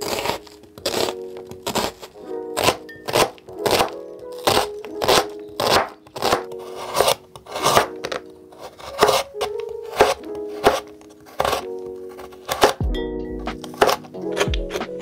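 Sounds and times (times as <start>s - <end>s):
soft background music: 0.0s - 15.0s
knife chopping on cutting board: 2.6s - 12.8s, 13.5s - 14.9s.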